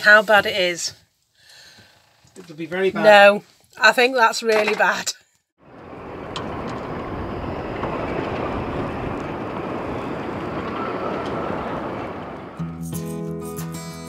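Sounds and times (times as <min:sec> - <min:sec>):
wind buffeting microphone: 0:05.6 - 0:12.6.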